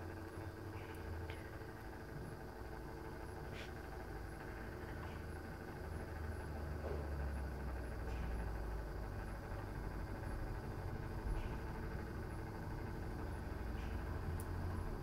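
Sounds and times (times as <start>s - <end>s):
turntable motor humming: 0.0s - 15.0s
faint ticks: 13.8s - 14.7s.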